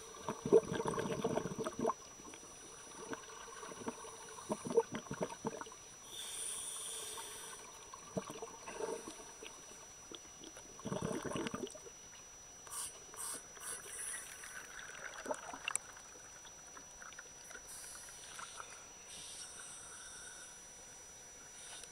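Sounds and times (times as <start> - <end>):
water sloshing and gurgling: 0.0 - 6.1, 7.5 - 12.6, 13.5 - 19.0
water splashes: 14.3 - 17.7.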